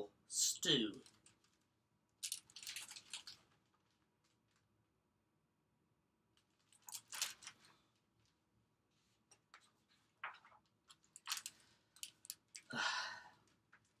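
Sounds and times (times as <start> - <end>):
book pages rustling and flapping: 2.2 - 4.7, 6.4 - 12.7.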